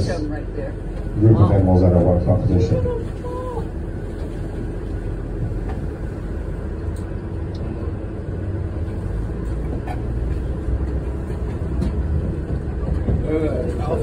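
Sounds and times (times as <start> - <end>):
boat engine rumbling: 0.0 - 14.0.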